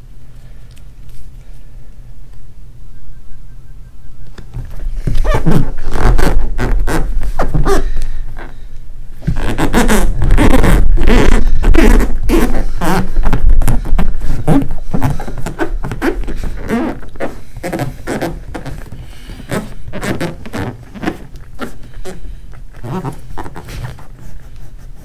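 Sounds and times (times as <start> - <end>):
hands rubbing and knocking on vinyl: 4.4 - 8.5, 9.2 - 25.0.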